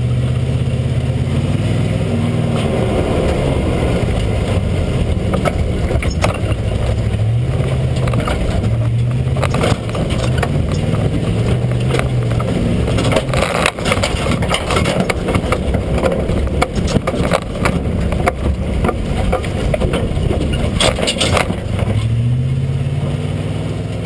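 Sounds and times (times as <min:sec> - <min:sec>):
truck engine running: 0:00.0 - 0:24.0
undercarriage knocks and rattles: 0:04.2 - 0:22.2.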